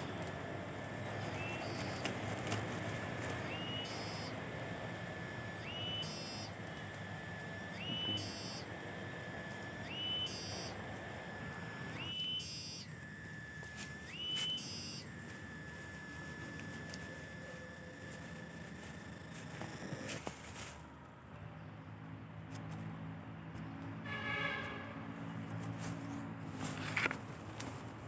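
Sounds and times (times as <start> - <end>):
plants rustling: 1.1 - 3.9, 13.3 - 21.0, 25.5 - 28.0
fern stems snapping: 1.4 - 3.6
whistled animal call: 3.5 - 4.4, 5.6 - 6.5, 7.7 - 8.7, 9.8 - 10.8, 12.0 - 12.9, 14.1 - 15.1.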